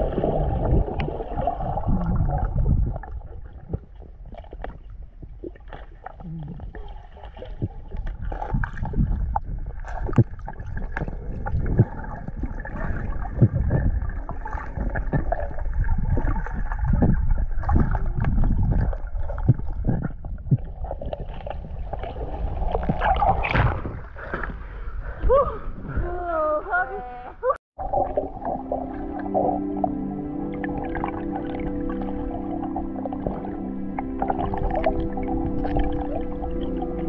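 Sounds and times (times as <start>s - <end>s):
water sloshing: 0.0s - 26.6s, 27.8s - 37.0s
underwater rumble and gurgling: 0.0s - 37.0s
underwater clicks: 7.4s - 12.4s.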